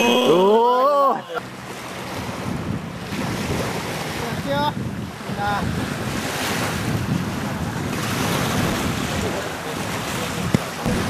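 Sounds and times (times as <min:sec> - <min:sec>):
small waves washing on shore: 0:00.0 - 0:11.0
wind buffeting microphone: 0:01.4 - 0:11.0.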